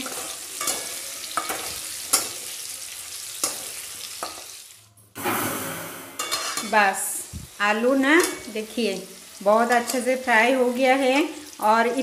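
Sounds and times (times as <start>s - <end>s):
potatoes sizzling in hot oil: 0.0s - 4.9s, 6.2s - 12.0s
metal spatula scraping pan: 5.2s - 7.0s.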